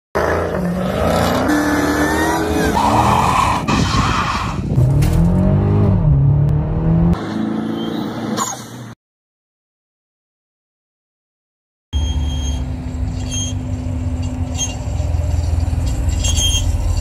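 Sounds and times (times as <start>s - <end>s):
car engines revving hard: 0.2s - 8.4s
tire squeal: 1.3s - 4.7s, 7.6s - 8.8s, 12.0s - 17.0s.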